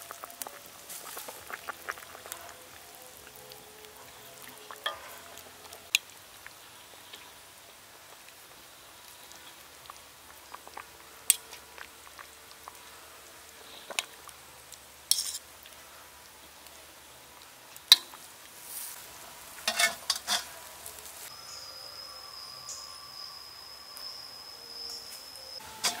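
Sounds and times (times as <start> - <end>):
sauce bubbling in a wok: 0.0 - 21.4
metal ladle clinking on pan: 19.7 - 20.5, 25.7 - 26.0.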